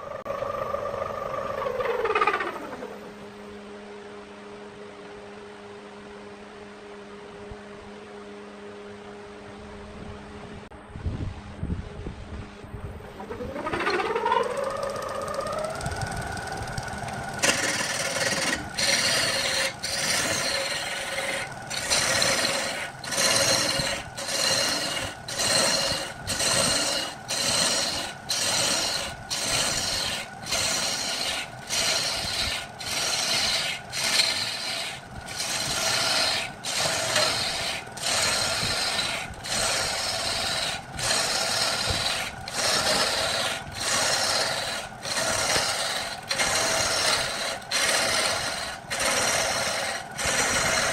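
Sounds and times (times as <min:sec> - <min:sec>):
lathe steady tone: 0:12.6 - 0:50.9
turning tool scraping wood: 0:13.8 - 0:50.9.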